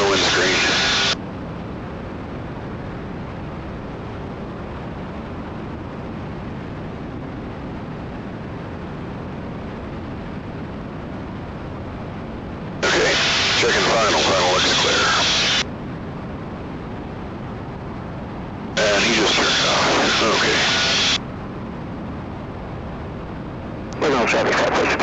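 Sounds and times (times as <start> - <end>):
aircraft engines and propellers droning: 0.0 - 25.0.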